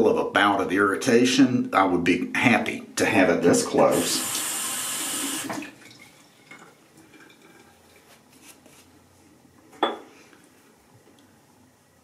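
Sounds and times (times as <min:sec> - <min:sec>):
tap water running into sink: 0:03.6 - 0:07.7
faint handling sounds: 0:06.6 - 0:11.3.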